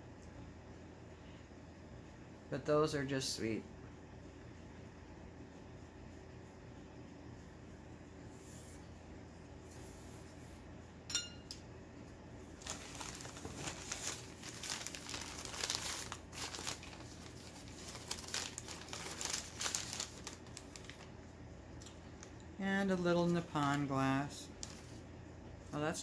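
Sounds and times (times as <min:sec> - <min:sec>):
short clink: 0:11.1 - 0:11.6
packing wrap crinkling: 0:12.5 - 0:21.2, 0:24.5 - 0:25.0.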